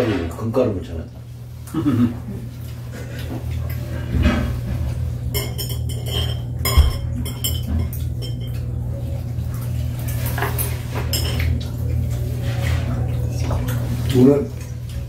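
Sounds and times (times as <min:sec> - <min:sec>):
steady low hum: 0:00.0 - 0:15.0
chopsticks clinking on plates: 0:05.4 - 0:08.7.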